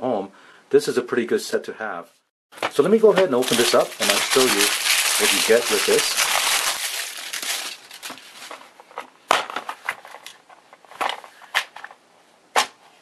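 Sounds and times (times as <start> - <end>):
plastic crackling: 2.6 - 12.0.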